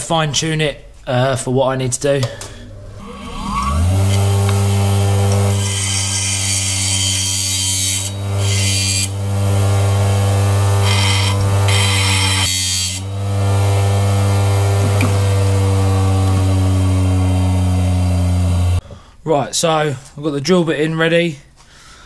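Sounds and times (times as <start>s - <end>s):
bench grinder humming: 2.8s - 18.8s
metal bit grinding hiss: 4.0s - 13.1s.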